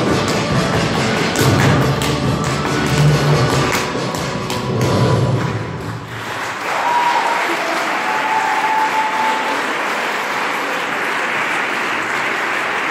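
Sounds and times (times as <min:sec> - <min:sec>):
audience applauding: 0:04.5 - 0:12.9.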